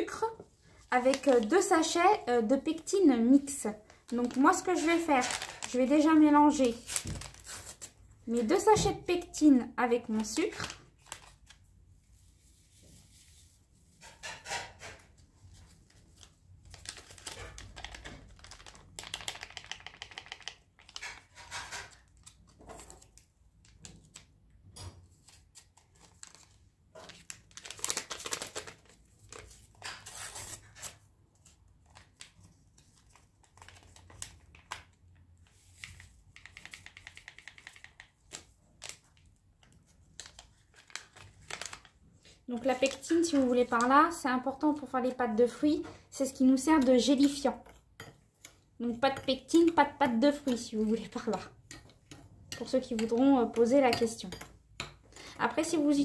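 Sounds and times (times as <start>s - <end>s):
sachets crinkling and tearing: 0.9s - 1.8s, 3.8s - 8.0s, 10.1s - 11.7s, 15.9s - 24.3s, 25.2s - 31.0s, 31.8s - 35.0s, 36.7s - 44.2s
powder stirred in a bowl: 12.1s - 22.9s, 33.8s - 56.0s.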